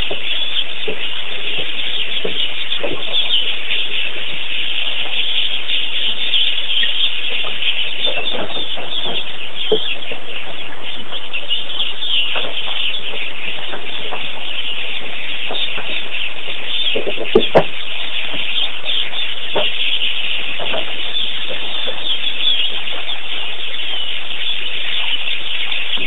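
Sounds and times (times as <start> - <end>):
birds calling and chattering: 0.0 - 26.0
lower bird calls: 0.0 - 26.0.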